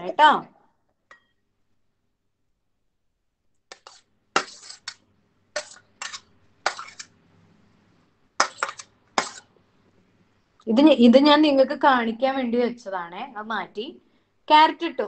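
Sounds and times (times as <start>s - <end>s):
metal spoon scraping on steel plate: 3.7s - 7.2s, 8.4s - 9.5s.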